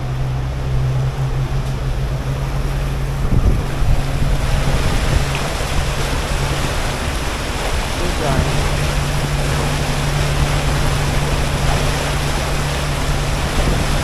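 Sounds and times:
boat engine drone: 0.0s - 14.0s
water rushing past hull: 0.0s - 14.0s
wind gusting on microphone: 0.0s - 14.0s.

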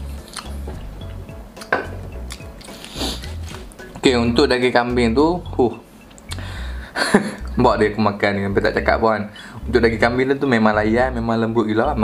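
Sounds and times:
music with bass beat: 0.0s - 6.8s
lip smack: 0.2s - 0.5s
wet chewing mouth sounds: 0.2s - 3.7s.

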